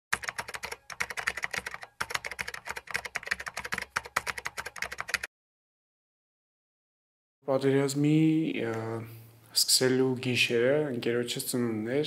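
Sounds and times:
rapid keyboard typing: 0.1s - 5.3s.

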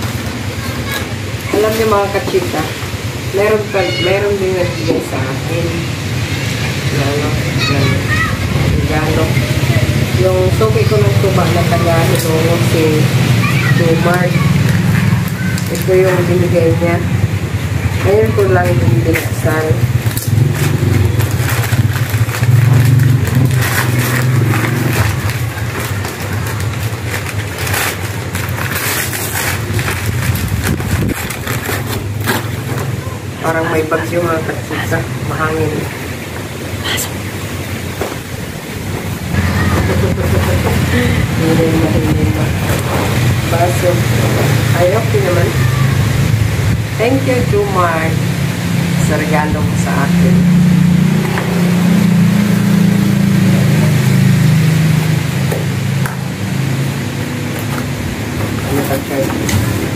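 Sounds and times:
low engine-like drone: 0.0s - 59.9s
wrapping paper rustling: 14.4s - 16.5s, 18.2s - 33.4s.

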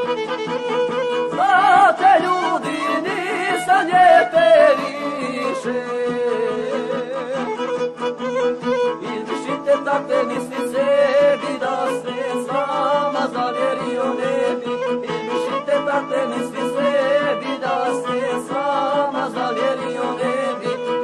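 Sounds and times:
violin: 0.0s - 21.0s
person singing: 1.0s - 21.0s.

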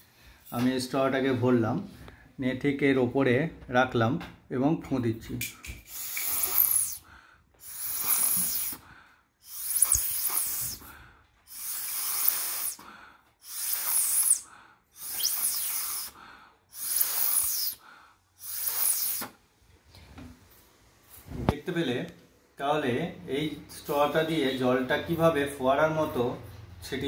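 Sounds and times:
breath blasts through a straw: 5.8s - 19.4s.

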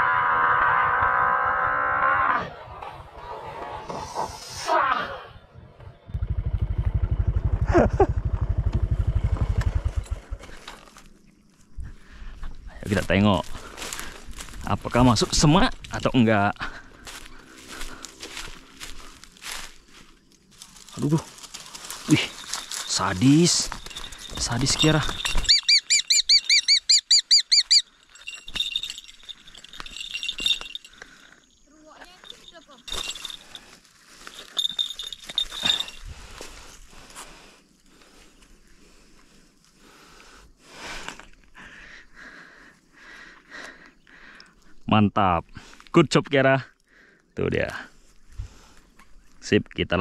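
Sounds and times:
motorcycle engine starting and running: 0.0s - 2.8s, 5.6s - 11.1s
short falling calls: 20.9s - 31.5s
bird giving sharp high calls: 25.3s - 27.9s.

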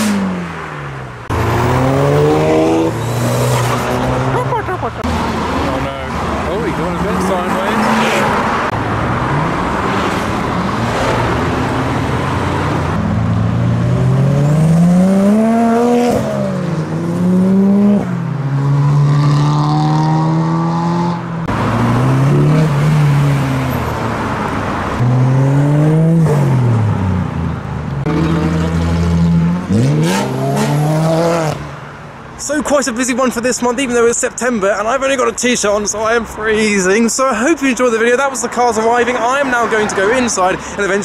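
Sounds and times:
modified cars accelerating past: 0.0s - 31.8s.

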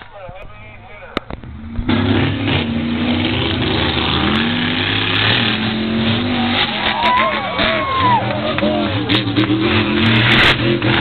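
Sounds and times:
monster truck engine revving: 1.3s - 11.0s.

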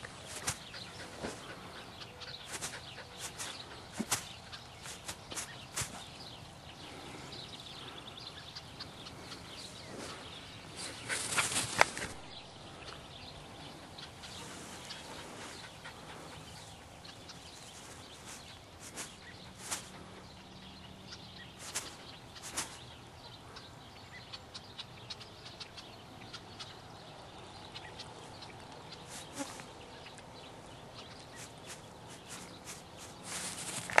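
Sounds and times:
rustling: 0.0s - 7.2s, 9.6s - 12.3s, 14.2s - 20.2s, 21.6s - 22.9s, 29.1s - 29.8s, 31.2s - 34.0s
outdoor background noise: 0.0s - 34.0s
dog panting: 0.2s - 4.1s, 13.9s - 17.5s.

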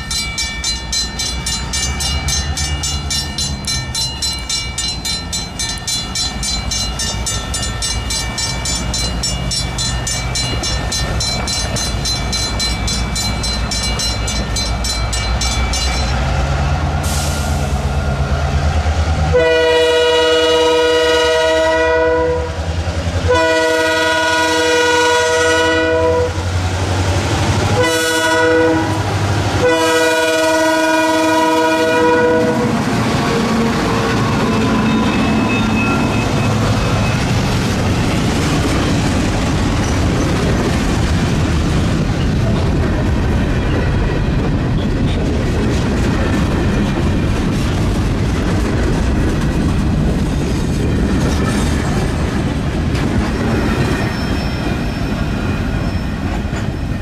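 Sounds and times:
rail-joint clicking: 0.0s - 16.4s
train wheels rumbling: 0.0s - 57.0s
locomotive horn blasts: 19.3s - 22.6s, 23.2s - 26.4s, 27.7s - 32.8s.

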